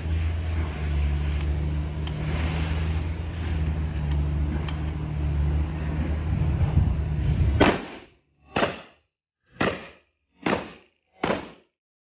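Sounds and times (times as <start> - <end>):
shotgun shots: 7.6 - 9.0, 9.6 - 11.7.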